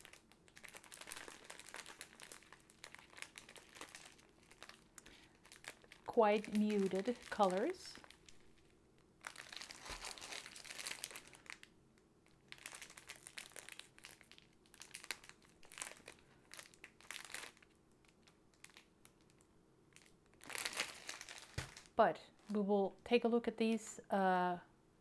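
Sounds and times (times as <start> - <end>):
plastic wrapping crinkling: 0.0 - 22.0.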